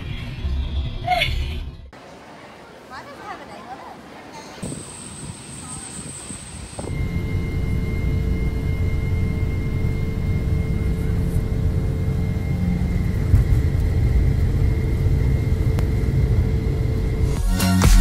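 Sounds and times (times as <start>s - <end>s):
jet engine rumble: 4.6s - 17.4s
jet engine whine: 4.6s - 17.5s.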